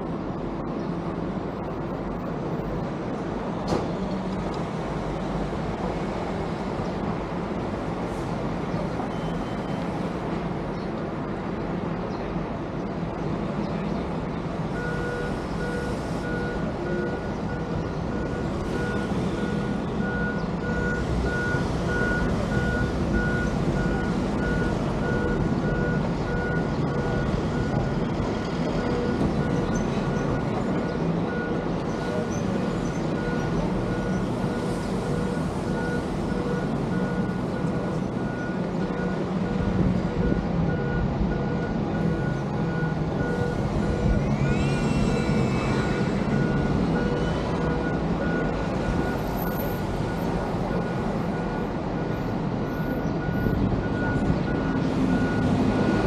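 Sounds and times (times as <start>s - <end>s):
vehicle engine and road noise: 0.0s - 56.0s
reversing alarm beeps: 9.1s - 9.9s, 14.7s - 28.0s, 28.8s - 32.3s, 33.0s - 56.0s.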